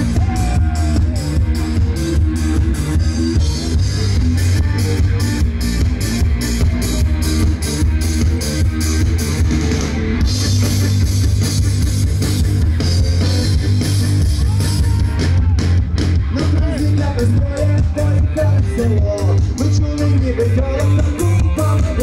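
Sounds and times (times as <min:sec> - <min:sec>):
live rock band playing: 0:00.0 - 0:22.0
person singing: 0:16.3 - 0:22.0.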